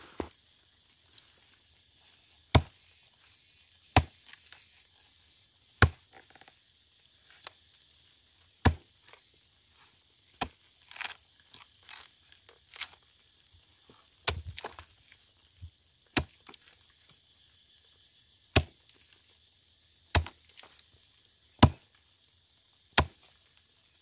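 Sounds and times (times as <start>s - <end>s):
wood crackling: 0.0s - 24.0s
axe chopping wood: 2.5s - 2.8s, 3.9s - 4.2s, 5.8s - 6.0s, 8.6s - 8.9s, 14.2s - 14.8s, 16.1s - 16.4s, 18.5s - 18.8s, 20.1s - 20.4s, 21.6s - 21.8s, 23.0s - 23.2s.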